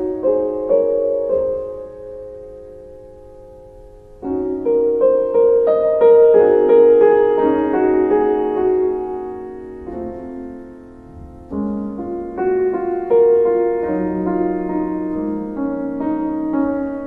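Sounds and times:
slow solo piano: 0.0 - 17.0.

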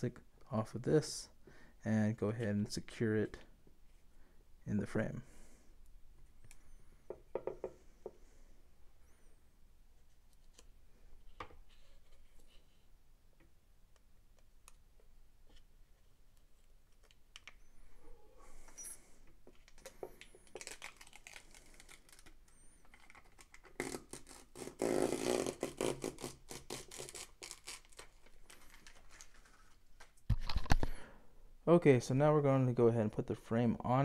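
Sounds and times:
plastic film crackling rustle: 19.6 - 24.6, 26.0 - 30.2.

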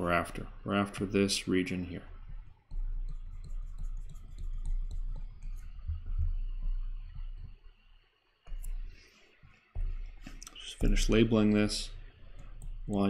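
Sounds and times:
stylus tapping on tablet screen: 2.3 - 7.6, 8.5 - 11.7.

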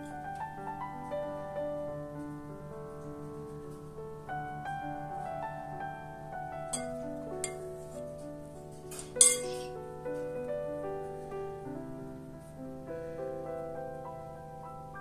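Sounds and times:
gentle piano music: 0.0 - 15.0
spoon clinking glass bowl: 6.7 - 7.6, 8.9 - 9.7.

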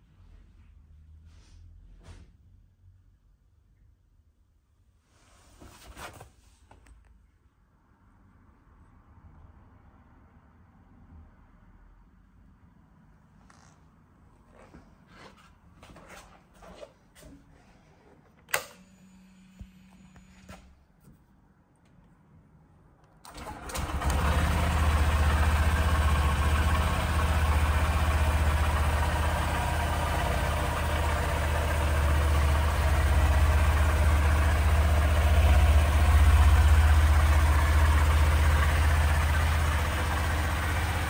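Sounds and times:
motorcycle engine starting and idling: 23.2 - 41.0.

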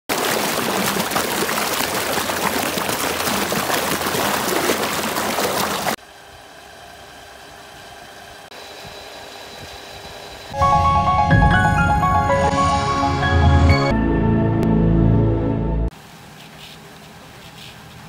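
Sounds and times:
water gushing from pipe: 0.1 - 6.0
pump motor humming: 0.1 - 10.6.

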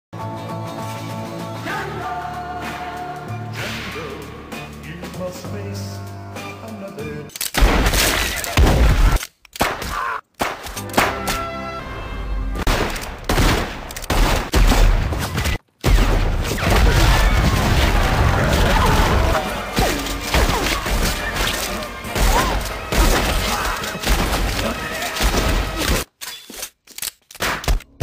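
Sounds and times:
action film music: 0.7 - 6.8, 10.5 - 13.8, 14.8 - 26.1
gunshots: 7.5 - 11.5, 12.6 - 26.1
large explosion: 16.0 - 19.4.

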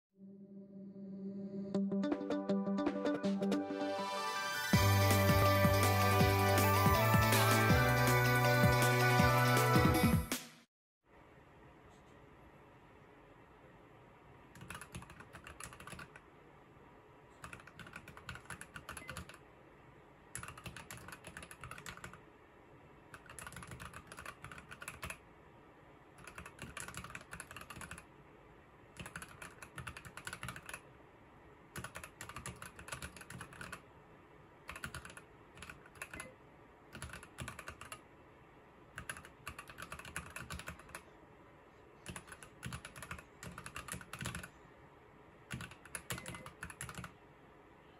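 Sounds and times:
mechanical keyboard typing: 14.5 - 16.2, 17.4 - 19.4, 20.3 - 22.2, 23.1 - 25.2, 26.2 - 28.1, 28.9 - 30.8, 31.8 - 33.8, 34.7 - 36.3, 36.9 - 38.0, 39.0 - 41.0, 42.0 - 44.5, 45.5 - 47.2.

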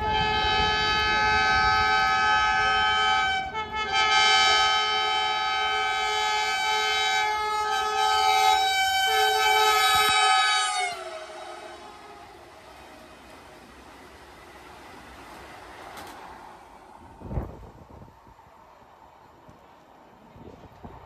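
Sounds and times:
train horn blasts: 0.0 - 13.4.

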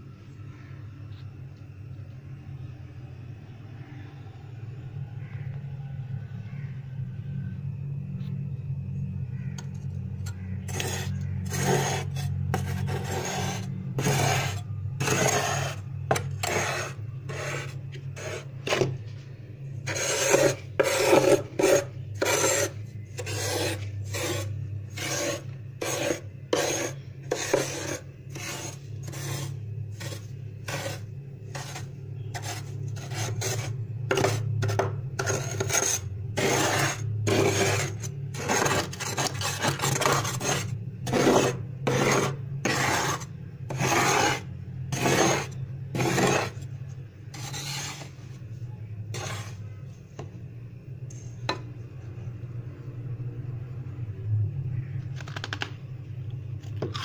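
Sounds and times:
low hum: 0.0 - 43.7
metal spoon scraping ice: 9.6 - 19.0, 19.8 - 46.7, 47.3 - 48.2, 49.1 - 49.7.

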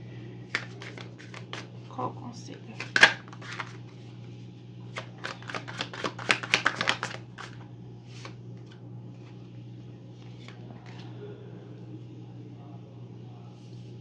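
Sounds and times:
steady low hum: 0.0 - 14.0
card taps: 0.5 - 1.7, 5.0 - 7.6
cards being shuffled: 0.5 - 1.7, 2.7 - 3.8, 4.9 - 9.4, 10.2 - 11.1.

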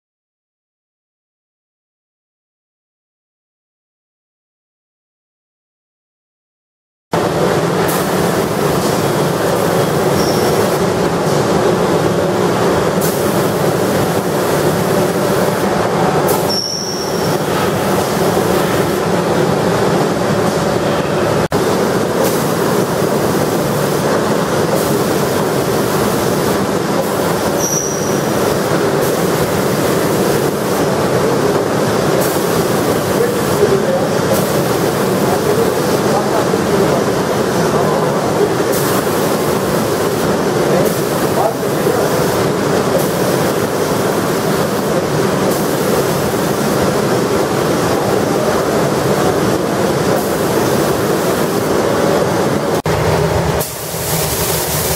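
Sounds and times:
booth air extraction rushing: 7.2 - 54.9
short high squeak: 10.2 - 10.6, 16.4 - 17.4, 27.6 - 28.3
spray gun hissing: 53.6 - 54.9.

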